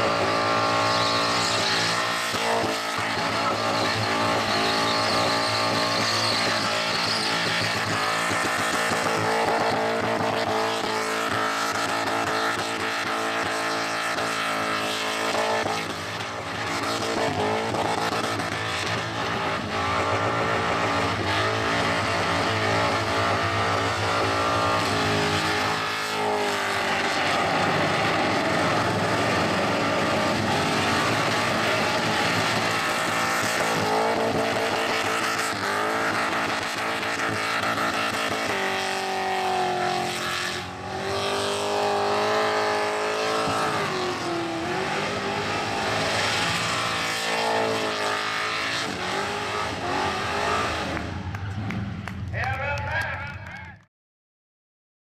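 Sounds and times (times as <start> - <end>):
tyres screeching: 0.0 - 9.8
car engine revving high: 0.0 - 52.3.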